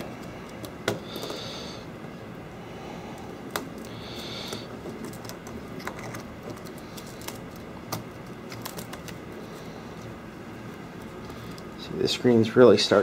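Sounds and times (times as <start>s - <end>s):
glass clicking and crackling: 3.5s - 9.2s.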